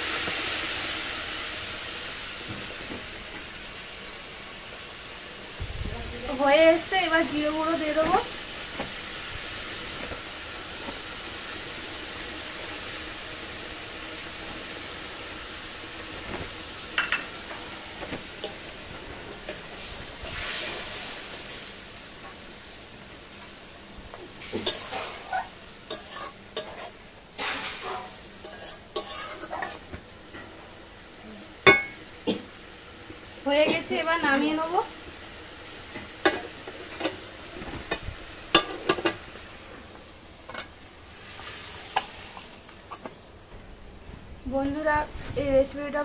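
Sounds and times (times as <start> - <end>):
curry sizzling in pan: 0.0 - 46.0
spatula scraping and clinking: 24.6 - 27.0, 27.8 - 29.8.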